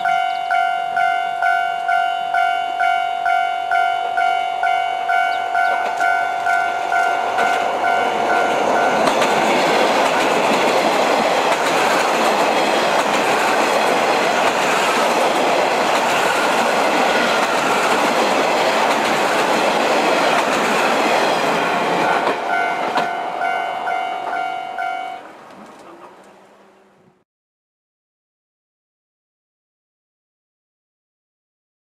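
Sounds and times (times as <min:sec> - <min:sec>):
rhythmic ringing: 0:00.0 - 0:10.0, 0:22.4 - 0:25.2
diesel train passing: 0:00.0 - 0:27.2
wheels clattering over rail joints: 0:06.9 - 0:23.3.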